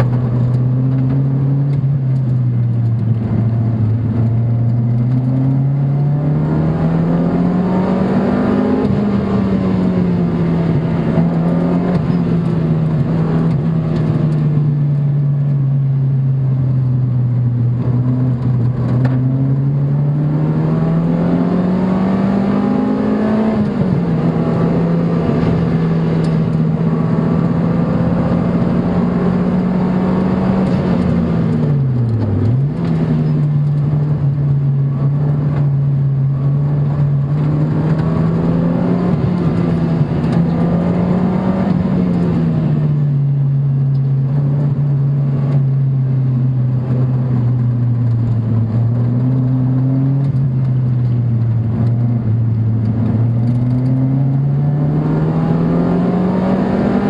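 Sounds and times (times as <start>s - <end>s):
sports car engine pulling: 0.0s - 57.0s.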